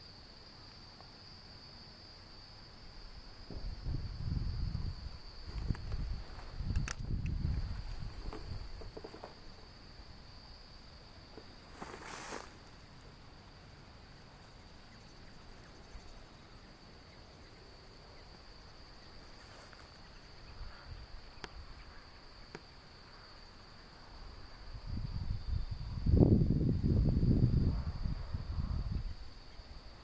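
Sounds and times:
insect trilling: 3.4 - 23.4
rustling: 5.5 - 9.5, 11.3 - 12.8
faint clicks: 6.7 - 7.6.

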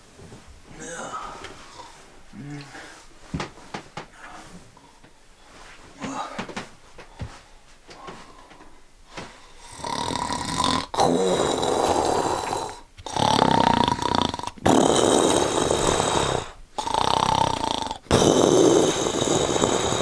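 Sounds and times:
man snoring: 9.5 - 20.0.

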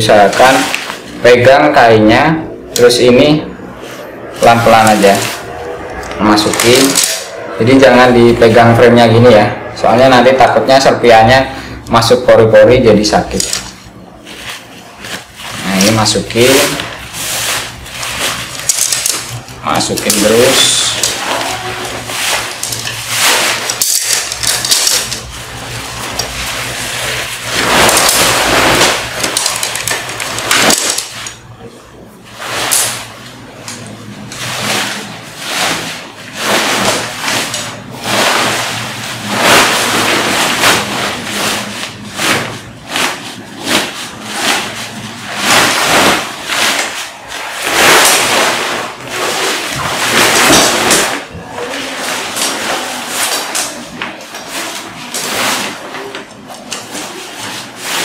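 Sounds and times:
tent fabric rustling and crinkling: 14.2 - 31.2, 34.4 - 53.8.

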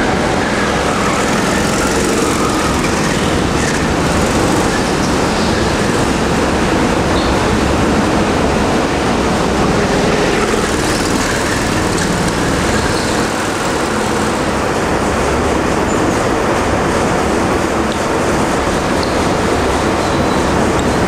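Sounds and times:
go-kart passing close by: 0.0 - 15.0
go-kart engines droning: 0.0 - 21.0.

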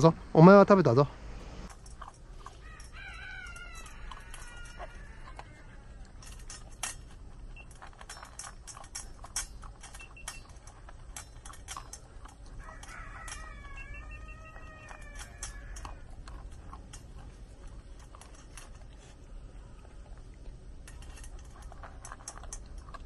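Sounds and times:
dog eating from metal bowl: 1.7 - 23.0
animal drawn-out falling call: 12.9 - 16.1.

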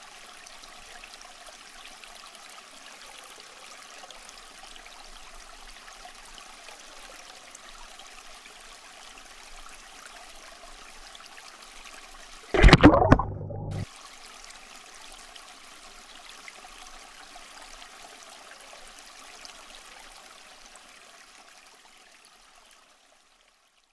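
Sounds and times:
sudden loud sound: 12.6 - 13.8.

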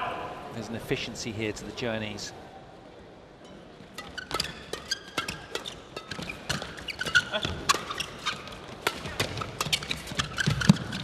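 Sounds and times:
shoes squeaking on court: 3.8 - 11.0
rackets striking shuttlecock: 3.9 - 11.0.

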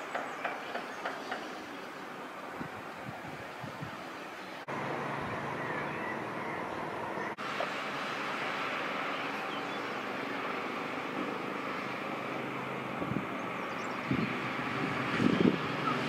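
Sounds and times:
distant road traffic hum: 0.0 - 16.0
wind buffeting microphone: 2.5 - 4.1, 12.8 - 16.0.

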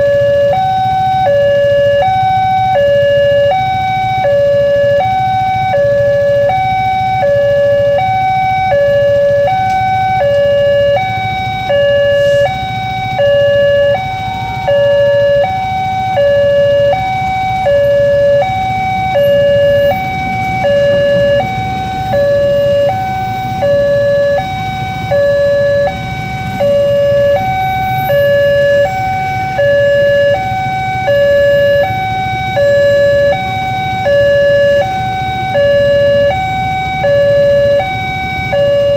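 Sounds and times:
two-tone crossing alarm: 0.0 - 38.9
passing train rumble: 8.2 - 38.9.

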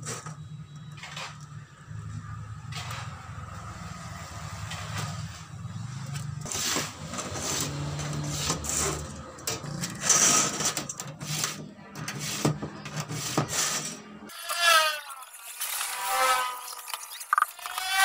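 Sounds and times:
scriber scratching steel sheet: 6.4 - 18.0.

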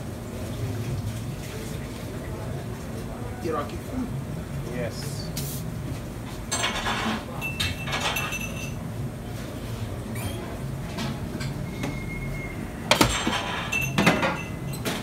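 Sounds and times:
brief squeaks: 10.1 - 10.5.

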